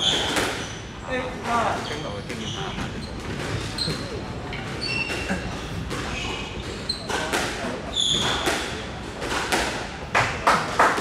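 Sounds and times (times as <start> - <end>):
shoes squeaking on wooden floor: 1.5 - 7.3, 7.9 - 8.6.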